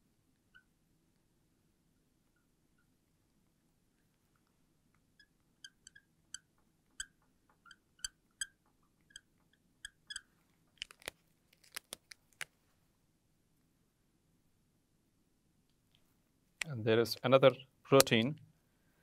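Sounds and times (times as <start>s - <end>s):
marker squeaking on glass: 5.2s - 10.3s
plastic marker caps clicking: 9.9s - 12.5s.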